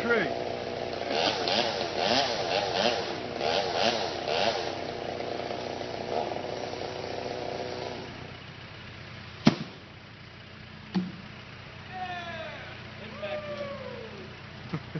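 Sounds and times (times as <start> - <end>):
chainsaw running: 0.0 - 8.5.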